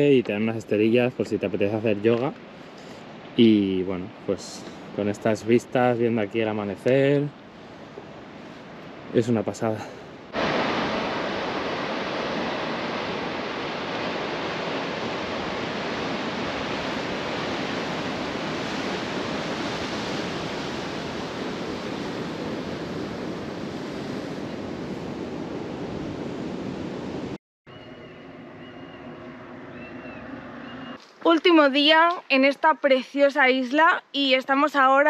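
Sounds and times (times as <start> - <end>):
surf washing against rocky shore: 1.3 - 27.4.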